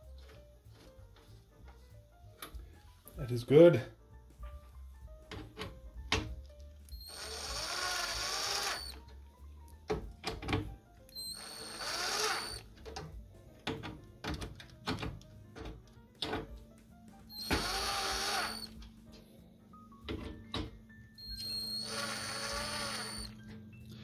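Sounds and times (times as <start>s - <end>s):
cordless drill motor whine: 6.9s - 9.0s, 11.1s - 12.7s, 17.3s - 18.8s, 21.2s - 23.6s.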